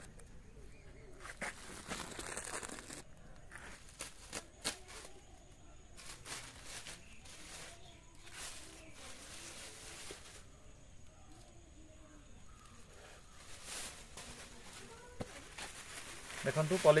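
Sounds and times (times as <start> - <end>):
plastic bag crinkling: 1.3 - 5.2, 13.3 - 17.0.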